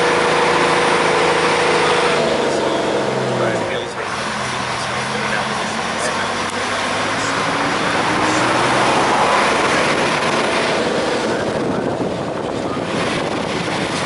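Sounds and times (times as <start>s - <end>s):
bus engine: 0.0s - 14.0s
road noise: 0.0s - 14.0s
rushing wind: 4.0s - 14.0s.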